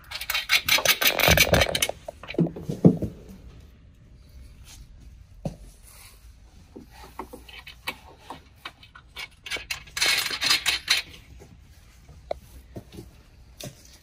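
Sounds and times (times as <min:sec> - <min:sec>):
metal nuts and washers clinking: 0:00.0 - 0:02.4, 0:07.4 - 0:11.4.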